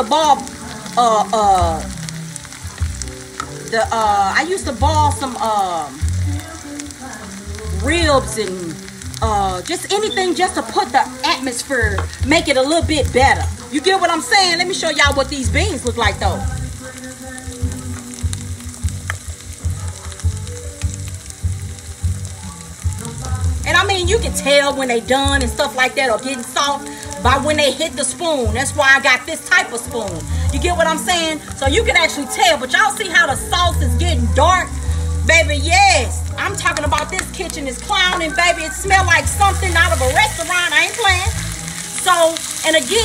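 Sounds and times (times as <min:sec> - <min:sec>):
woman's voice with sliding tones: 0:00.0 - 0:02.0, 0:03.7 - 0:06.0, 0:07.7 - 0:16.6, 0:23.7 - 0:41.4, 0:42.0 - 0:43.0
beans boiling and bubbling: 0:00.0 - 0:43.0
vegetables sizzling in a frying pan: 0:00.0 - 0:43.0.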